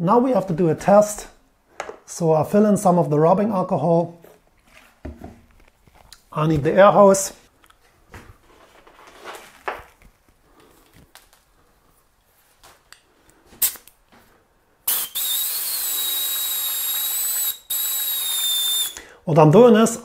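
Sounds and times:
airbrush hissing: 0:14.9 - 0:19.0
thin high whistle: 0:14.9 - 0:19.0.

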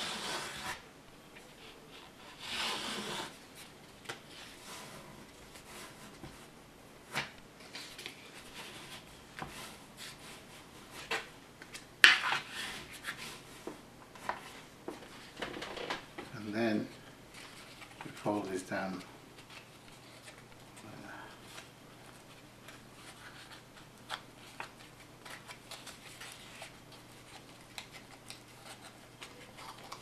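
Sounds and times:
card scraping on wooden table: 0:02.3 - 0:03.4
paper rustling: 0:07.1 - 0:30.0.

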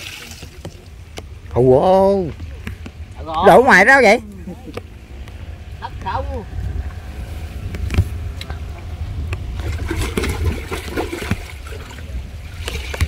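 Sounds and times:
water pouring and splashing: 0:00.0 - 0:01.1, 0:09.5 - 0:13.0
wind rumble on microphone: 0:00.6 - 0:13.0.

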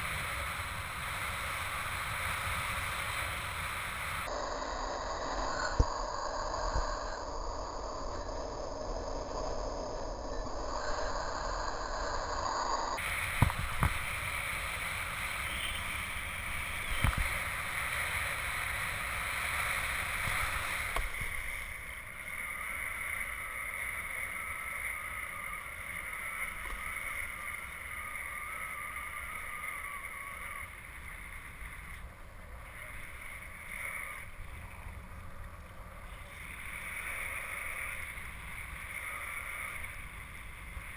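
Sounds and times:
wind buffeting microphone: 0:13.0 - 0:21.4
water rushing and spraying: 0:13.0 - 0:21.7.

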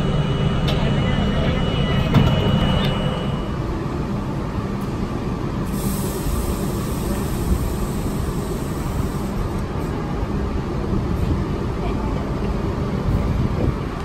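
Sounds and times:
subway train hum and rumble: 0:00.0 - 0:14.0
train hiss: 0:05.6 - 0:09.6.

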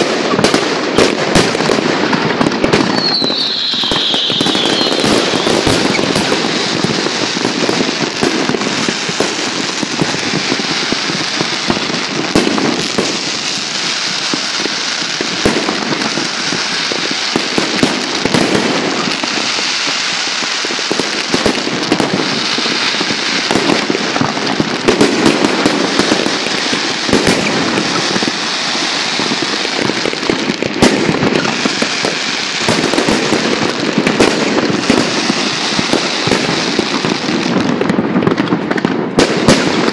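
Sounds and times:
fireworks shell bursts and crackles: 0:00.0 - 0:39.9
sharp firework bangs: 0:00.0 - 0:39.9.

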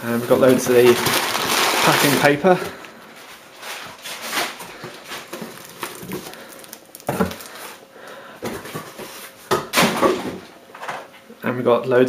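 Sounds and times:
paper and bubble wrap crinkling: 0:00.0 - 0:07.8.

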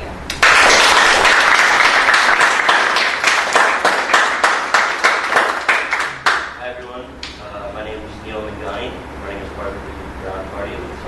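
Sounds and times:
audience applauding: 0:00.3 - 0:06.6.

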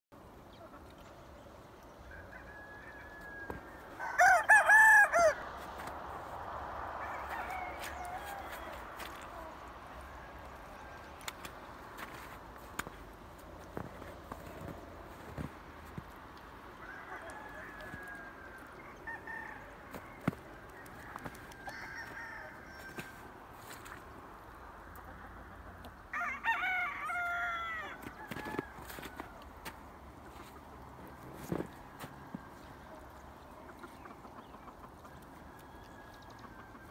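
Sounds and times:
distant roosters crowing: 0:02.0 - 0:13.0, 0:13.6 - 0:33.1
rooster crowing loudly: 0:02.1 - 0:05.6, 0:06.9 - 0:09.6, 0:16.8 - 0:20.4, 0:21.0 - 0:23.2, 0:26.1 - 0:29.4.

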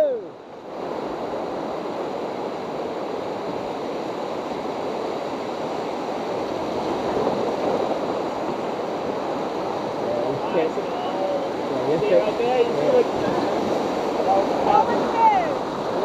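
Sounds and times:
whitewater rapids rushing: 0:00.0 - 0:16.0.

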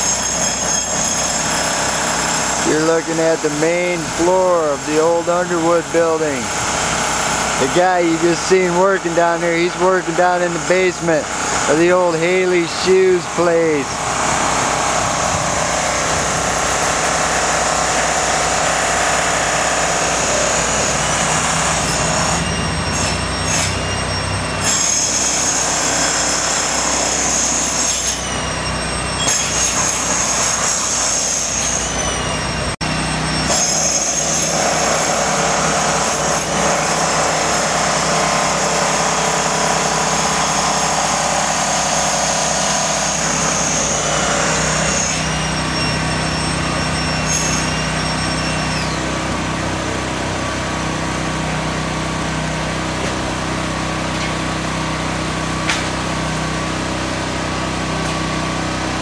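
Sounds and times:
high-pitched whine: 0:39.0 - 0:50.1.

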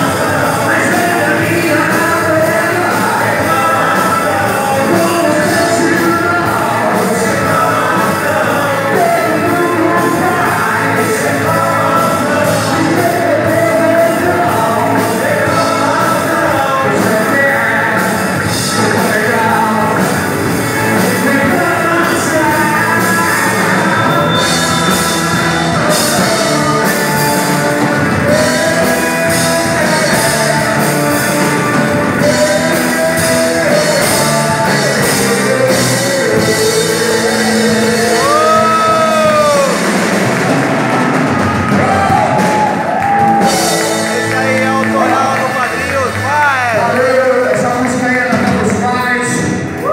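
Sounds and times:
lead vocalist singing: 0:00.0 - 0:49.9
live rock band: 0:00.0 - 0:49.9.

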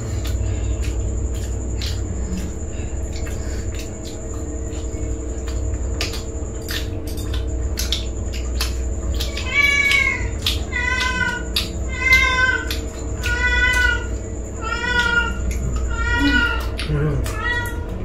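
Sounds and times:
crunchy food being chewed: 0:00.0 - 0:18.0
cat meowing: 0:09.2 - 0:18.0.

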